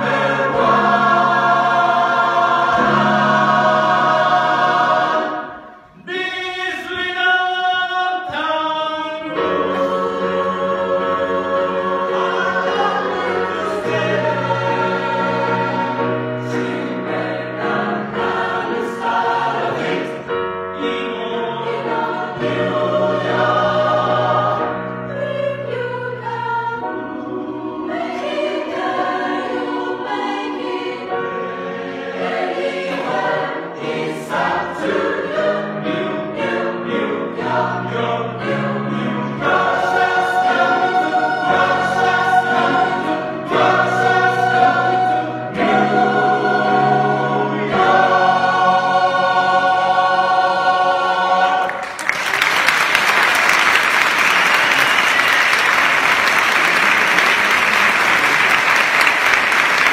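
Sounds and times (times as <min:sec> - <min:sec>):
mixed choir singing in harmony: 0:00.0 - 0:59.9
audience applause: 0:51.6 - 0:59.9.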